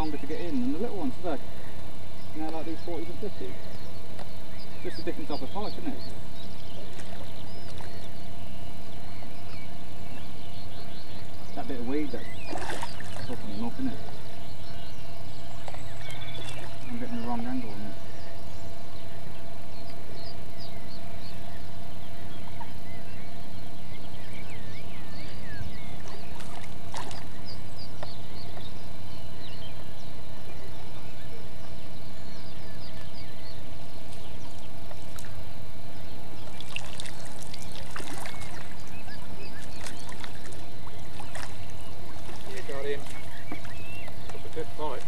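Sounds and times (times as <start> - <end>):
birds chirping: 0.0 - 45.0
steady hum: 0.0 - 45.0
fish splashing at surface: 36.6 - 38.8.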